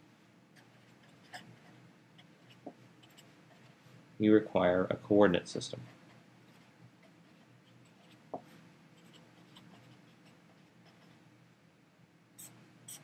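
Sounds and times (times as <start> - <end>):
marker scratching on paper: 0.6 - 3.8, 5.8 - 8.4, 9.0 - 11.2, 12.4 - 13.0.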